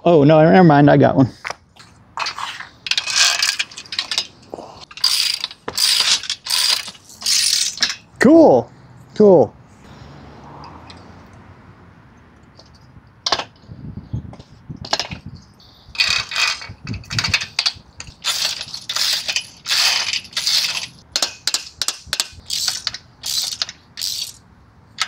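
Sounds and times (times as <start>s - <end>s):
ratchet wrench clicking: 2.9s - 8.0s, 16.0s - 24.4s.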